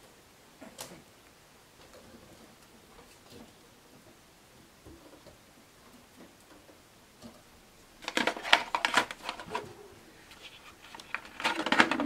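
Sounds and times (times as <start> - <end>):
plastic clicking and rattling: 8.0 - 9.7, 10.3 - 12.0.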